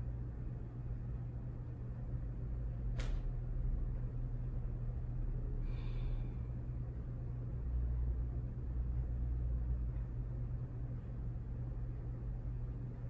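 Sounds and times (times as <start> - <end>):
low room hum and rumble: 0.0 - 13.0.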